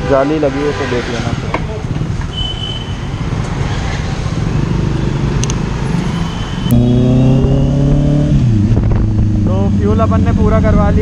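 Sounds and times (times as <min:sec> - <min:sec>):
vehicles running: 0:00.0 - 0:11.0
motorcycle engine loud exhaust: 0:06.7 - 0:11.0.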